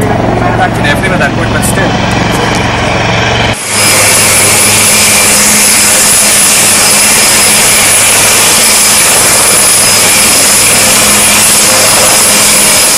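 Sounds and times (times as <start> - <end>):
helicopter turbine whine: 0.0 - 12.9
rotor rushing noise: 0.0 - 12.9.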